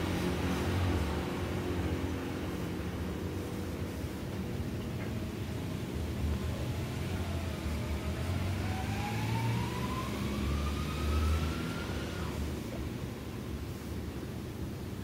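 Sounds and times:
distant vehicle engine: 5.2s - 12.9s.

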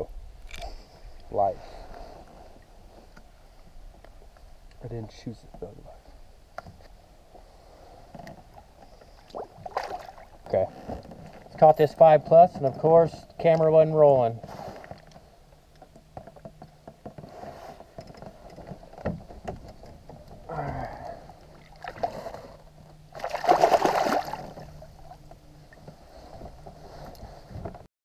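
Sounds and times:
fish splashing in water: 23.1s - 24.8s.

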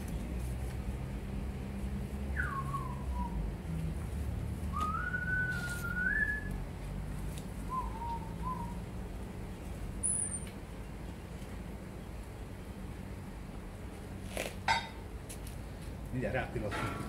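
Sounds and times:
person whistling: 2.4s - 3.4s, 4.7s - 6.5s.

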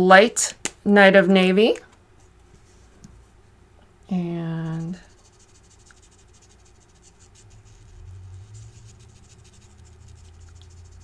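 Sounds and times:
low steady hum: 0.0s - 11.0s
marker scratching on cardstock: 4.4s - 11.0s.

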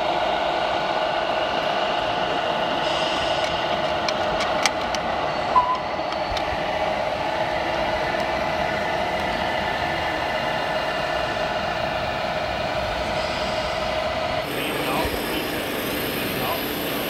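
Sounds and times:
model trucks mechanical whine: 0.0s - 17.0s
brief high beep: 5.6s - 6.0s.

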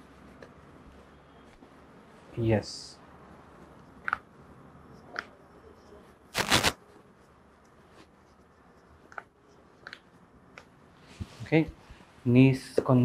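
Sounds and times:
glove crackling rustle: 6.3s - 6.8s.

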